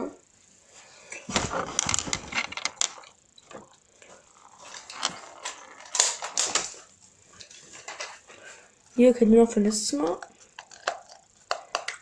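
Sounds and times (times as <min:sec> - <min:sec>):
objects clicking and knocking: 0:01.1 - 0:08.2, 0:10.1 - 0:12.0.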